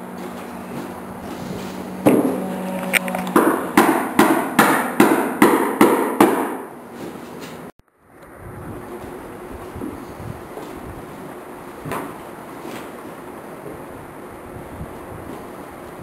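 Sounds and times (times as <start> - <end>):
hammer blows: 0.0 - 7.0.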